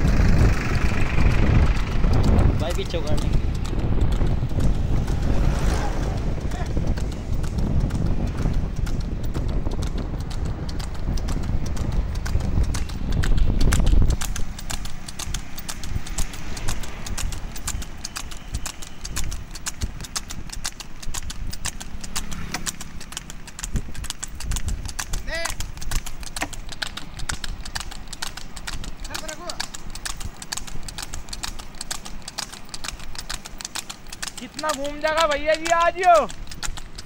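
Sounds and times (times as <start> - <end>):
low rumble: 0.0 - 18.0
hooves clip-clopping on asphalt: 0.0 - 37.0.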